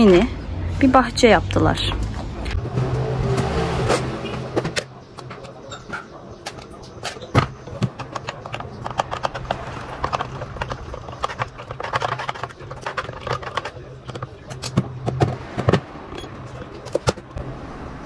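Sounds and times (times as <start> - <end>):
faint voices: 4.3 - 17.4.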